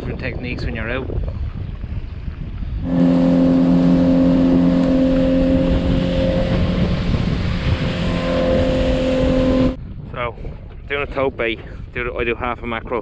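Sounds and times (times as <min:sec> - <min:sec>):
rush of wind and water: 0:00.0 - 0:13.0
boat engine running: 0:02.5 - 0:09.8.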